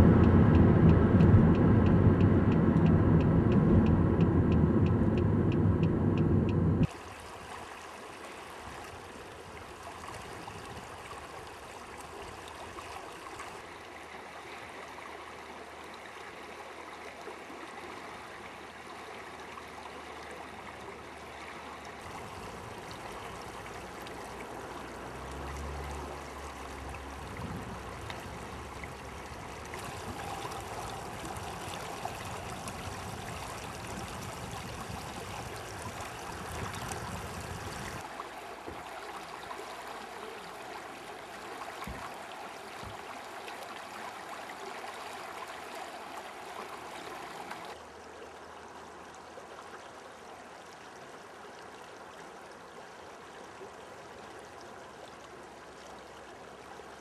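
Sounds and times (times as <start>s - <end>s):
brief low rumble: 0.0s - 6.9s
vehicle road noise: 0.0s - 7.0s, 20.5s - 40.3s
river rippling over stones: 6.8s - 57.0s.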